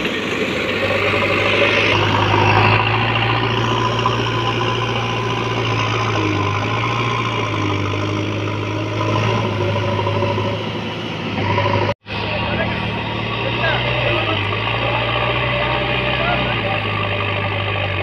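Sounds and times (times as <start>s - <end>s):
diesel engine running: 0.0s - 18.0s
loader bucket pushing soil: 0.0s - 18.0s.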